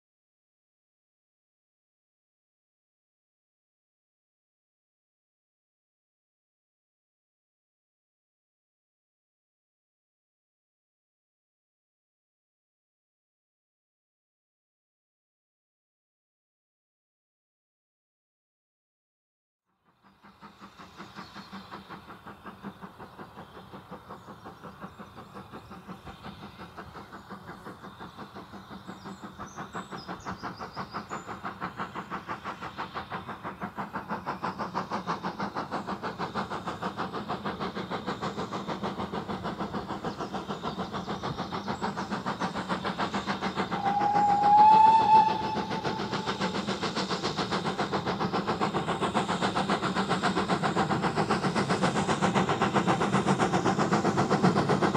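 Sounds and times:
steam locomotive exhaust beating: 0:19.8 - 0:54.9
steam locomotive whistle: 0:43.6 - 0:46.8.

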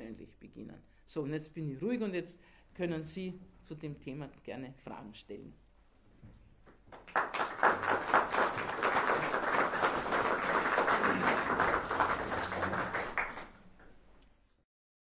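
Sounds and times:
audience applauding: 0:06.9 - 0:13.9.

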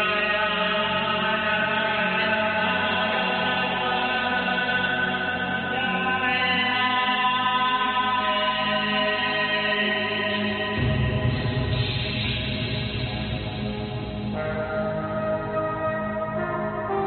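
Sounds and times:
layered looped male vocals: 0:00.0 - 0:12.6.

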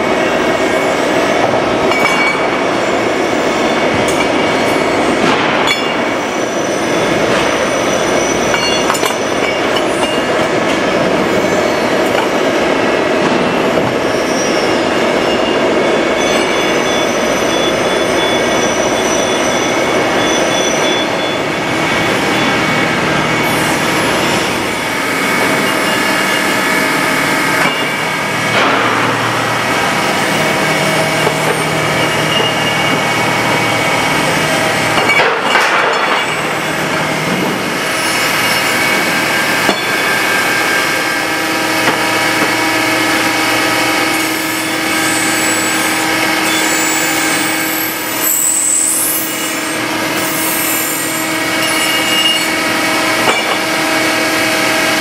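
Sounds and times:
foundry cleaning machines running: 0:16.6 - 0:55.0.

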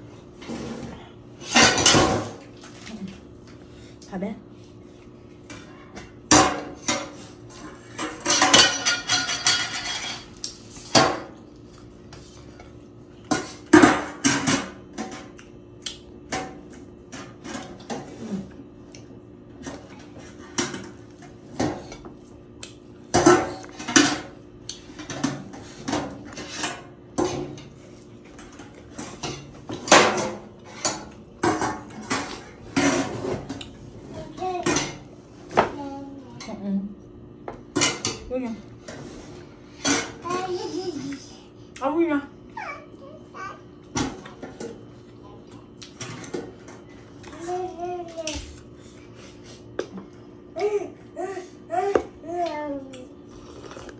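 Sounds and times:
crunchy chewing of fried food: 0:53.2 - 0:53.9.

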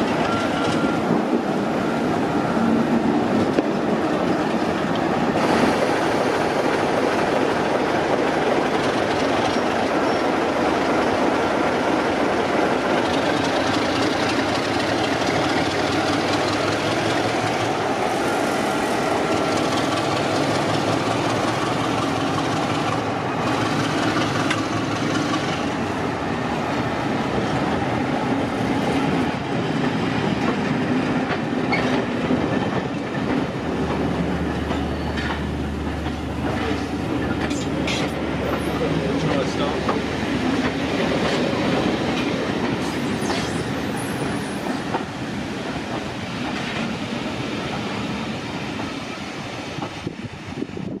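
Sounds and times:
diesel locomotive engine: 0:00.0 - 0:51.0
wheels clacking over rail joints: 0:28.9 - 0:43.4.

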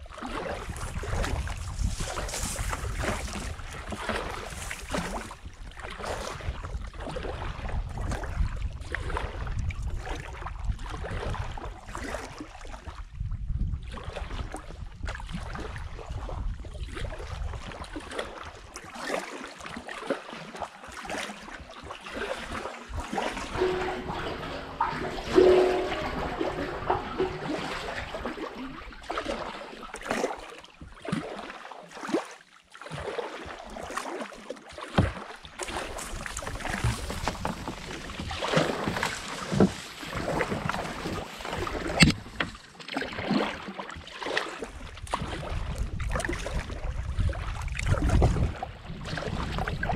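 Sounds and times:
paddle splashing in water: 0:00.1 - 0:10.3, 0:17.7 - 0:49.6
water dripping off paddle: 0:23.1 - 0:28.6.

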